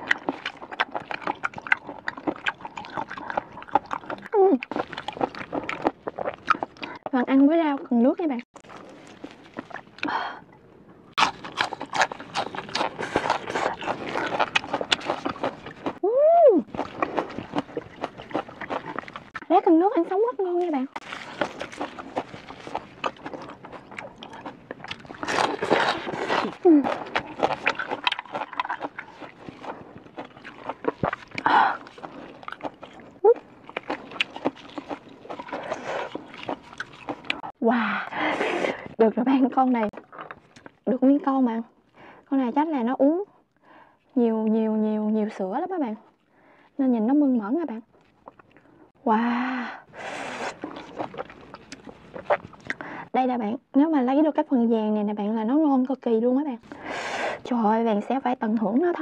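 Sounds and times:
crunchy chewing: 0.0 - 7.0, 8.5 - 10.1, 11.1 - 16.0, 16.6 - 19.5, 20.6 - 37.5, 49.9 - 52.9.

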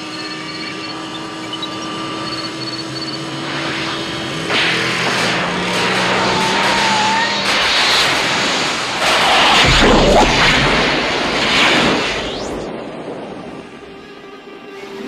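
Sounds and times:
car accelerating hard: 0.0 - 11.2
wavering whine: 0.0 - 15.0.

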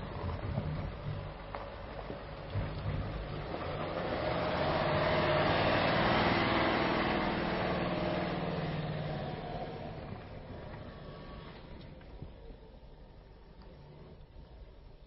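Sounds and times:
diesel engine passing: 0.0 - 14.2.

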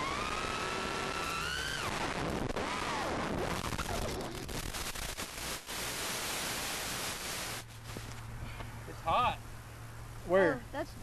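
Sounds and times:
static hiss and crackle: 0.0 - 8.3.

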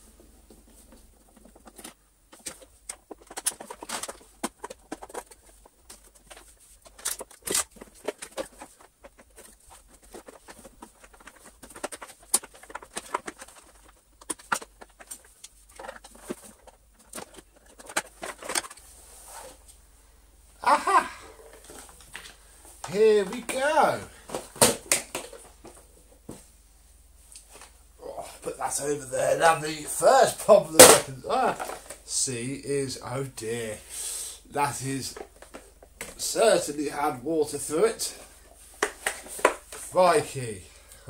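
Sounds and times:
plastic housing clicks and rattles: 1.3 - 18.8.

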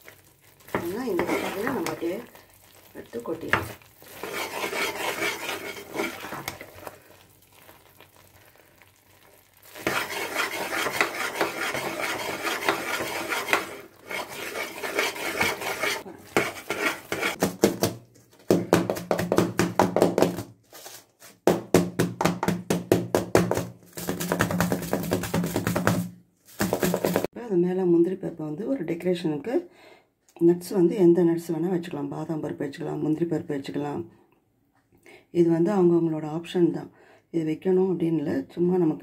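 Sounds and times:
thick mixture bubbling: 0.0 - 17.5
metal spatula scraping pan: 0.7 - 2.3, 3.5 - 6.9, 9.8 - 17.4.

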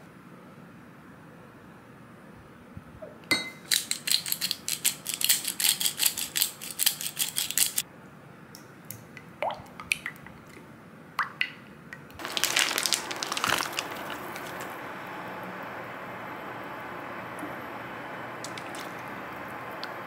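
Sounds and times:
spoon clinking in glass cup: 3.3 - 4.4
spoon scraping: 3.4 - 7.8
boiling water bubbling and hissing: 12.2 - 20.0.

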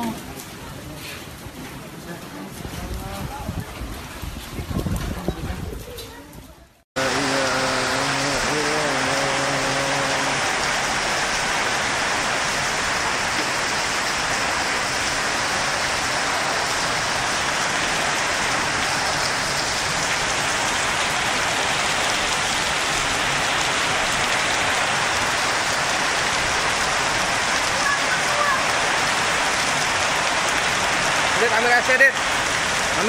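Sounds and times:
rain and hail on pavement: 0.0 - 33.0.

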